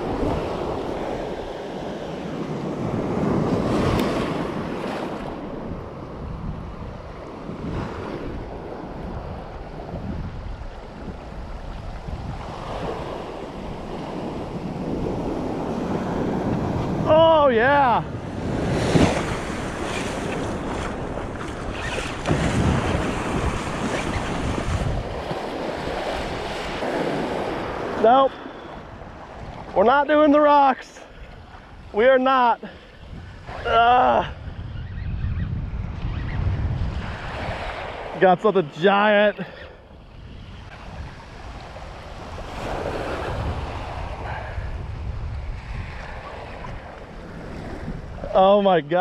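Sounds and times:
wind buffeting microphone: 0.0s - 30.4s, 31.0s - 38.7s, 39.4s - 49.0s
surf waves breaking: 0.0s - 35.0s, 35.7s - 49.0s
waves washing over pebbles: 12.6s - 30.8s.

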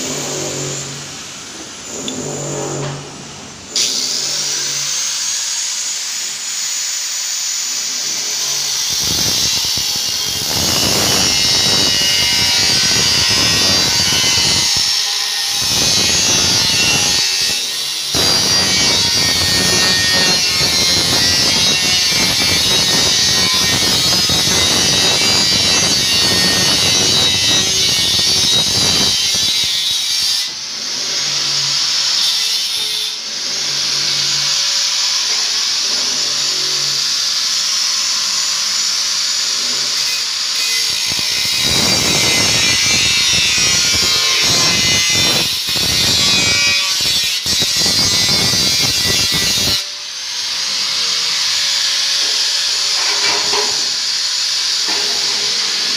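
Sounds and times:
angle grinder cutting metal: 0.0s - 55.9s.

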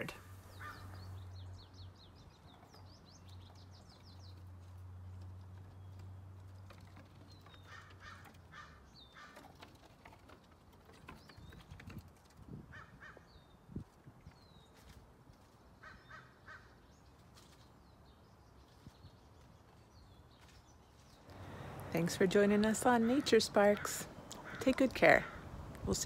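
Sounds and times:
harsh caw-like calls: 0.5s - 1.0s, 7.7s - 9.4s, 15.8s - 16.7s.

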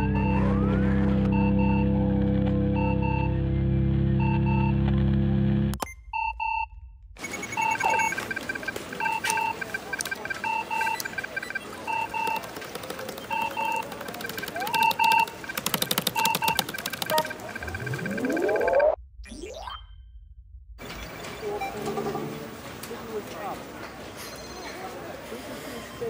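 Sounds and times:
electronic double beeps: 5.8s - 12.5s, 13.2s - 22.4s
rapid keyboard clicks: 9.1s - 18.6s
upward sweeping tone: 17.4s - 20.5s
low rumble: 17.8s - 20.9s.

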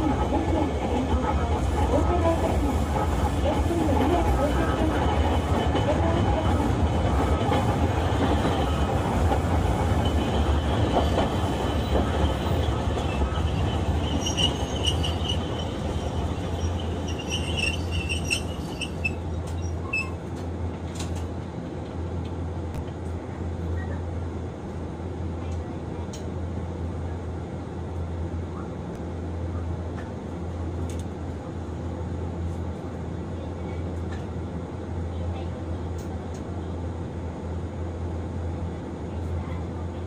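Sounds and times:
streetcar rumbling on rails: 0.0s - 40.0s
wheels squealing: 10.0s - 20.2s.

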